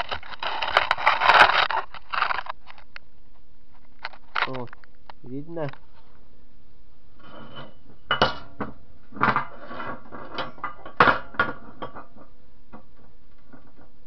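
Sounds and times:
metal scraping on metal: 7.2 - 14.0
metallic clanks: 7.2 - 14.0.

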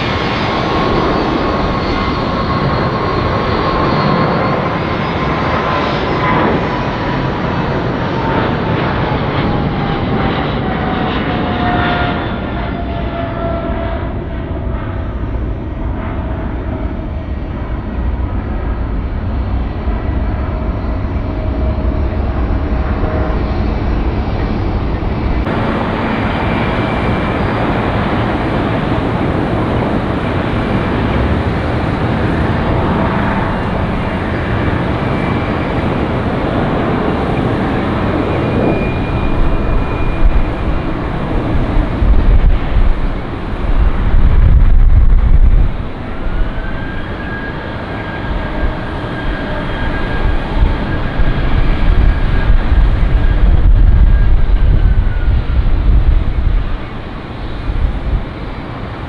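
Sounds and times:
jet airliner engines running: 0.0 - 59.0
strong low rumbles: 21.7 - 46.8, 50.3 - 58.4.

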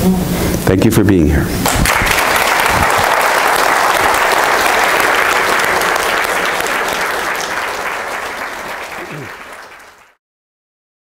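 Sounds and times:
audience applauding: 1.6 - 10.2.

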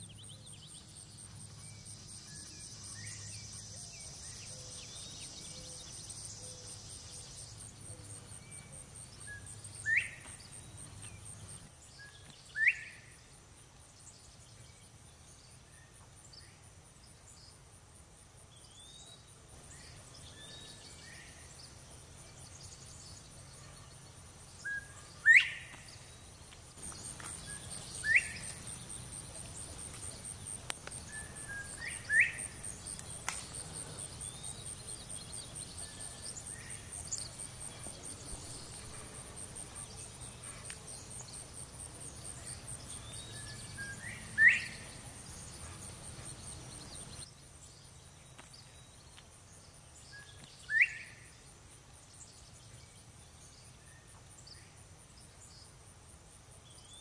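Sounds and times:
bird whistling rising call: 12.6 - 13.0, 24.7 - 25.7, 28.0 - 28.5, 43.4 - 44.8
high insect trill: 16.2 - 57.0.

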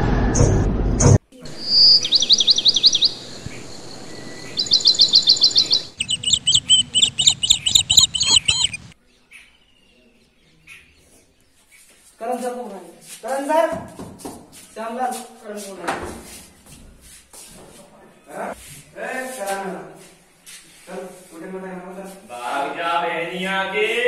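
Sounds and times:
birds chirping: 1.4 - 12.0.

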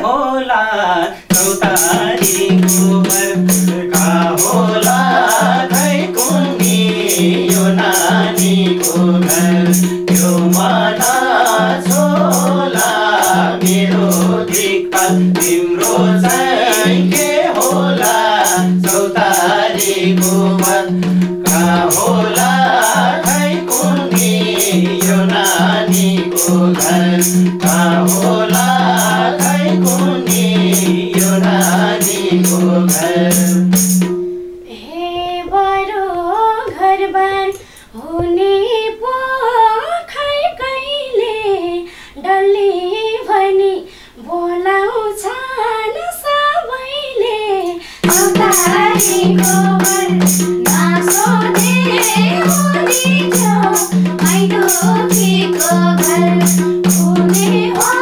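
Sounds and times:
woman singing: 0.0 - 33.5, 34.6 - 58.0
hand drum beat: 1.3 - 34.5, 48.0 - 58.0.

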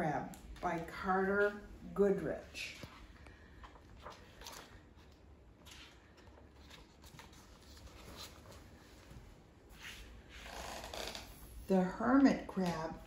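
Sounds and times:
book pages rustling: 2.6 - 10.5.

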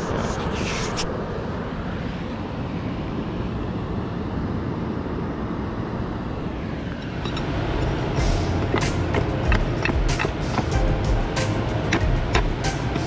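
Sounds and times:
rushing river water: 6.3 - 13.0.

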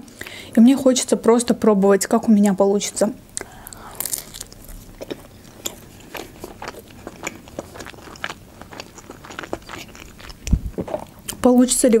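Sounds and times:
person chewing wetly: 3.4 - 11.4.

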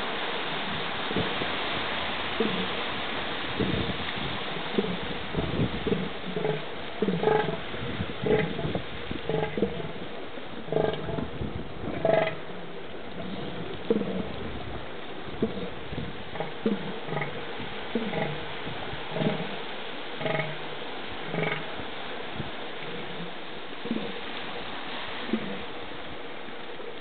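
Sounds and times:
steady background hiss: 0.0 - 27.0
elephant seal threat calls: 4.7 - 10.0, 10.6 - 11.3, 11.9 - 12.6, 15.3 - 19.6, 20.2 - 20.6, 21.3 - 21.8.

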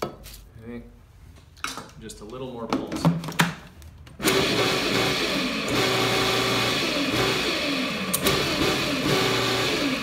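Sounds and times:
food processor chopping: 4.2 - 10.0.

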